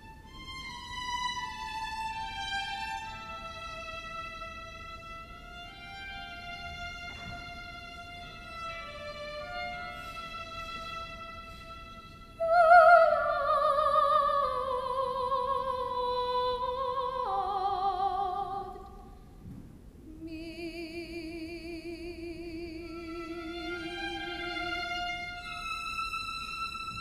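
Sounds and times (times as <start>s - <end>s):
bowed strings: 0.0s - 18.8s, 21.9s - 27.0s
soprano singing with vibrato: 12.4s - 19.1s, 20.1s - 27.0s.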